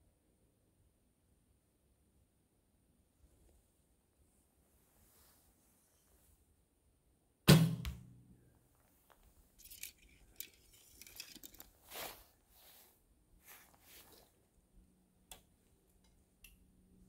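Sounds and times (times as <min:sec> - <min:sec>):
bowstring snap and twang: 0:07.5 - 0:08.3
clothing and arrow rustling: 0:08.6 - 0:14.6.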